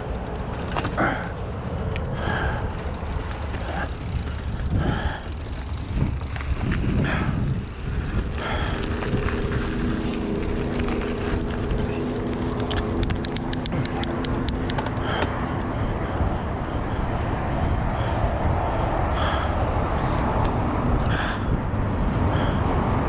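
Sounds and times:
sharp ticks: 0.0 - 15.8, 18.9 - 19.3
bike tyres rolling on road: 0.0 - 23.0
car traffic: 0.0 - 23.0
engine-like hum: 0.0 - 23.0
wind: 0.0 - 23.0.

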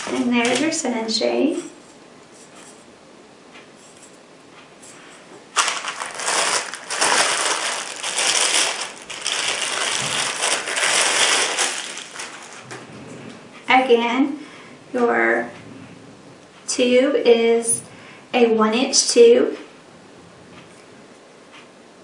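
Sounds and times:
plastic wrapping crinkling: 0.0 - 0.8, 5.5 - 12.8.

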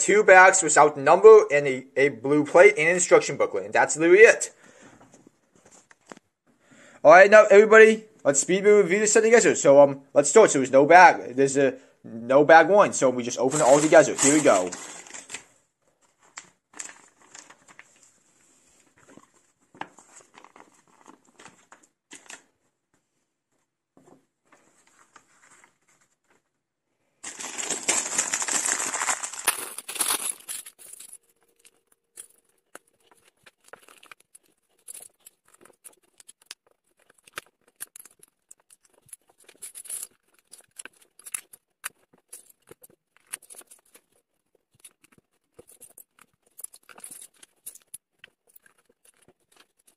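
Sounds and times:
plastic bag crinkling and tearing: 13.5 - 18.0, 19.8 - 22.5, 27.2 - 49.9.

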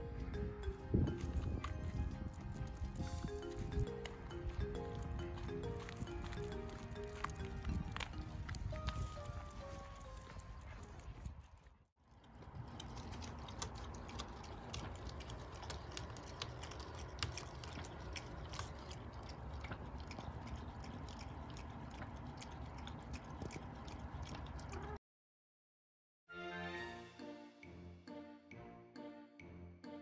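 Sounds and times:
dog eating from plastic bowl: 12.1 - 25.0.

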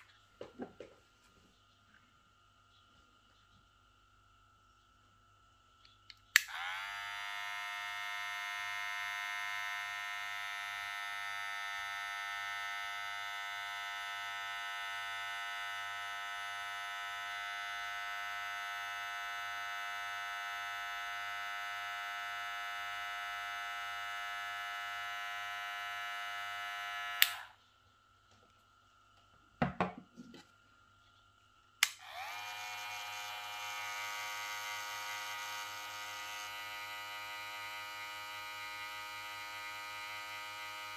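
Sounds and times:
hair clipper buzzing: 6.3 - 27.6, 31.8 - 40.9.

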